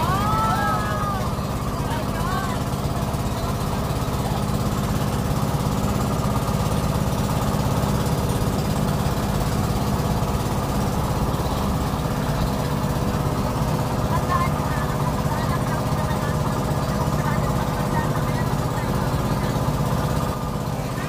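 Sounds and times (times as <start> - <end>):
boat engine droning: 0.0 - 21.0.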